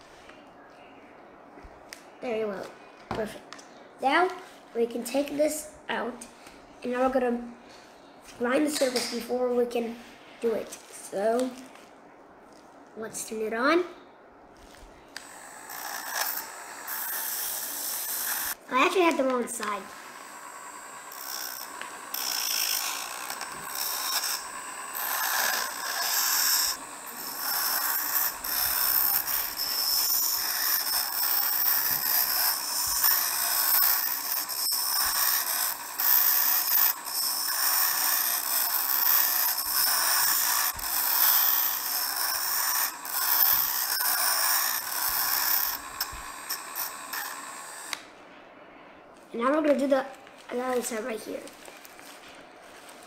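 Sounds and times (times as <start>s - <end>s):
rotary tool whine: 14.7s - 48.1s
metal grinding on stone: 15.2s - 18.6s, 19.5s - 48.0s.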